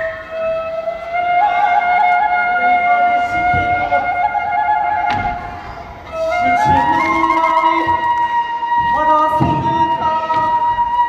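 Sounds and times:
bamboo flute playing: 0.0s - 11.0s
low drum beats: 3.1s - 11.0s.

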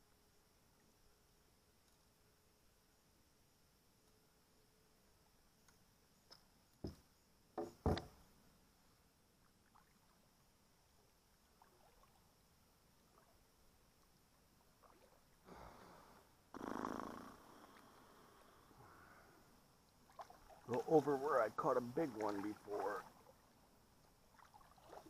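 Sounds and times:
knocks against kayak hull: 7.6s - 8.2s
paddle strokes in water: 14.7s - 16.2s, 19.9s - 23.4s, 24.1s - 25.0s.

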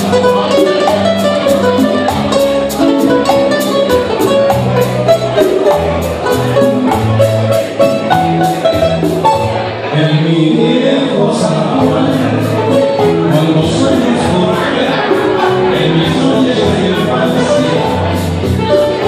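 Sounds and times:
ticking percussion beat: 0.0s - 9.6s
picked lead guitar melody: 0.0s - 19.0s
strummed guitar and bass: 0.0s - 19.0s.

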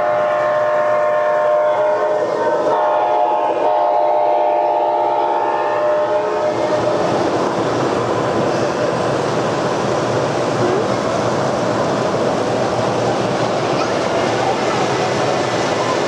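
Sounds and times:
model train horn blast: 0.0s - 6.6s
model trains running: 0.0s - 16.0s.

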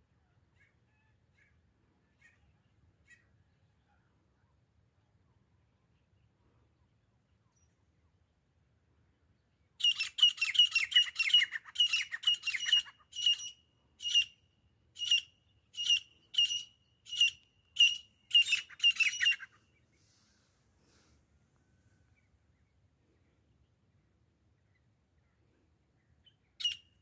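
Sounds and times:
francolin calling: 9.8s - 14.4s, 15.0s - 19.6s.

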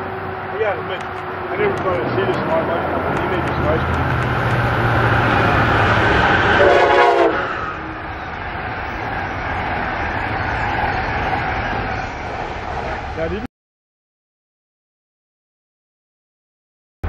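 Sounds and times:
train wheel and rail noise: 0.0s - 13.5s
train horn blast: 5.1s - 8.2s.

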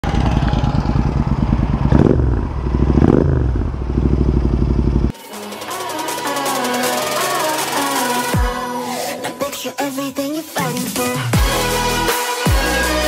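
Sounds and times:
motorcycle engine revving: 0.0s - 5.1s.

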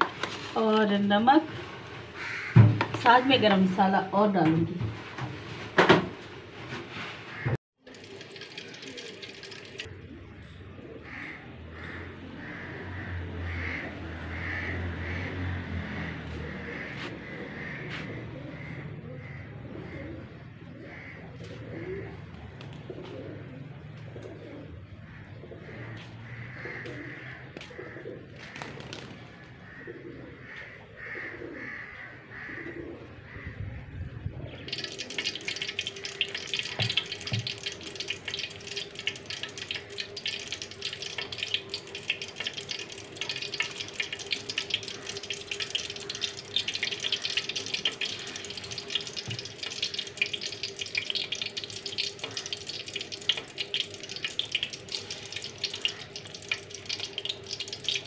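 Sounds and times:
hot oil sizzling and crackling: 0.0s - 3.5s, 7.3s - 9.9s, 34.6s - 58.0s
birds calling: 2.1s - 4.0s, 7.3s - 58.0s
dove cooing: 8.0s - 14.8s, 16.0s - 33.3s.

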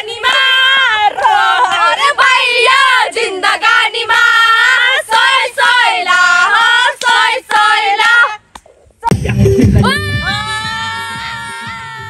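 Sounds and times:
women singing together: 0.0s - 8.4s.

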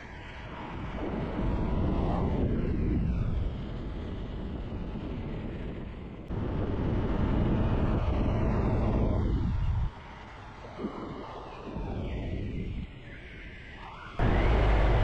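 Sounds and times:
wind and road rush: 0.0s - 15.0s
vehicles swishing past: 14.2s - 15.0s.

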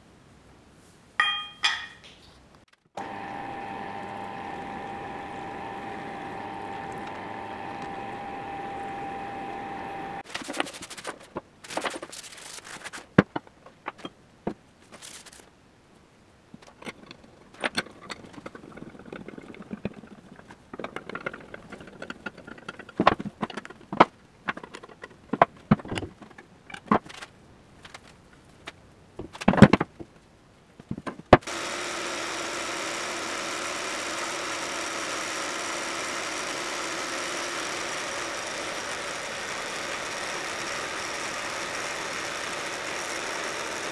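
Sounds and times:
steel parts clinking on workbench: 1.2s - 2.2s
milling machine cutting steel: 3.0s - 10.3s, 31.4s - 43.9s.

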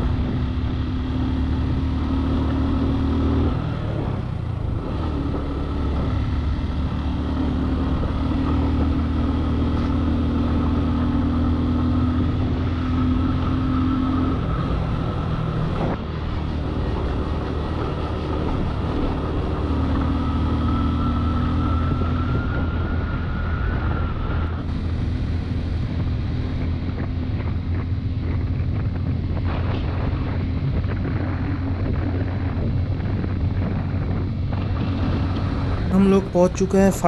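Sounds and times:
wind noise on microphone: 0.0s - 12.7s, 20.8s - 36.9s
motorcycle engine running: 0.0s - 37.0s.

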